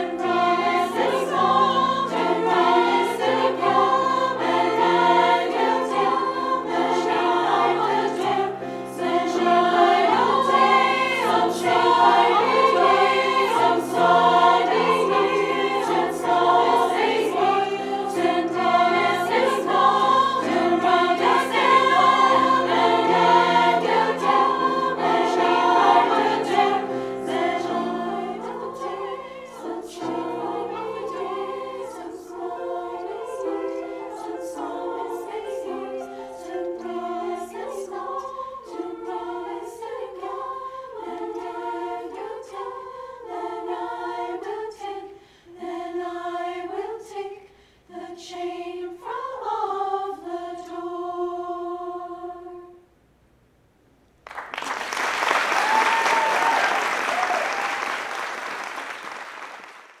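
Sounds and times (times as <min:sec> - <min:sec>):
women's choir singing: 0:00.0 - 0:52.8
audience applause: 0:54.3 - 1:00.0
audience cheering: 0:54.8 - 0:59.8.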